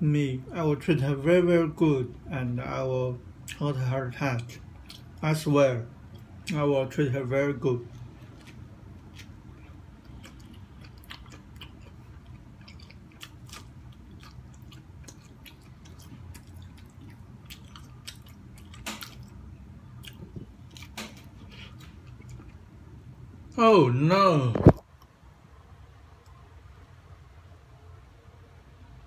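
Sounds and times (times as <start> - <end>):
person chewing corn: 4.8 - 5.2, 7.9 - 22.7.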